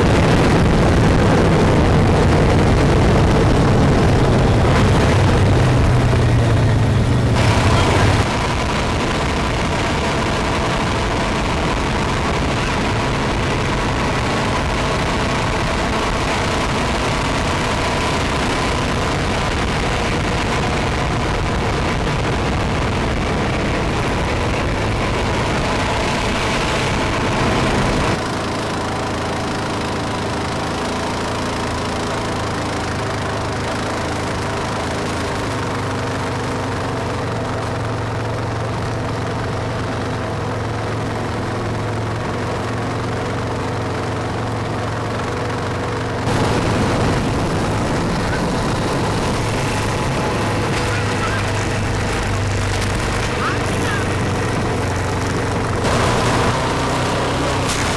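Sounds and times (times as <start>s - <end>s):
quad engine running: 0.0s - 57.9s
road noise: 0.0s - 57.9s
wind: 0.0s - 57.9s.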